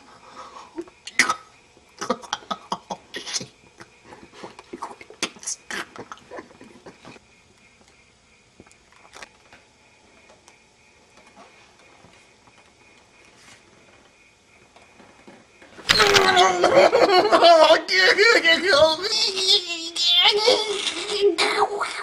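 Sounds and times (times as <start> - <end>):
faint rustling and handling: 11.1 - 15.9.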